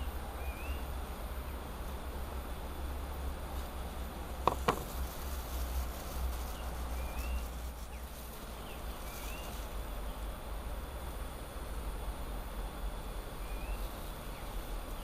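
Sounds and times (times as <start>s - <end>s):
sharp knocks: 4.5s - 4.9s.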